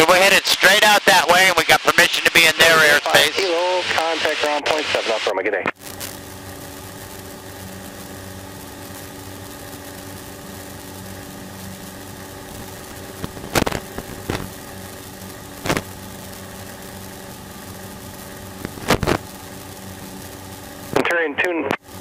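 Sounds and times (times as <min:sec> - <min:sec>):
sharp crackles: 0:05.7 - 0:22.0.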